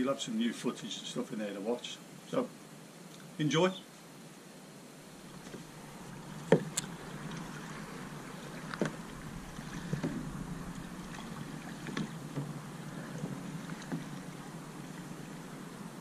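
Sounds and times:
water and wind hiss: 0.0 - 16.0
kayak paddles splashing: 5.1 - 16.0
paddle knocks: 5.2 - 15.5.

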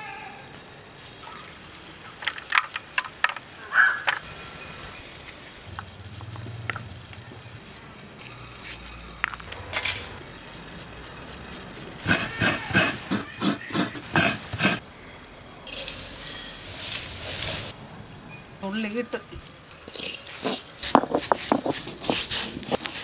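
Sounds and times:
coconut scraping strokes: 10.5 - 14.8, 19.9 - 23.0.

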